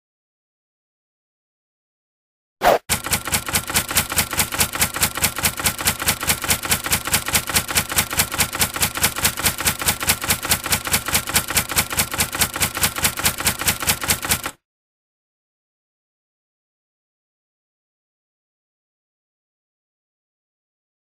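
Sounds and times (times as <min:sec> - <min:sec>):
typewriter keystrokes clacking: 0:02.9 - 0:14.6.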